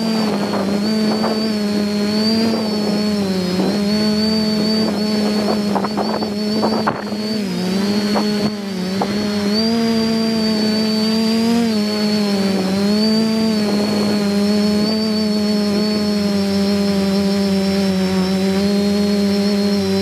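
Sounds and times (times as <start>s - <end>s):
drone propellers humming: 0.0s - 20.0s
high motor whine: 0.0s - 20.0s.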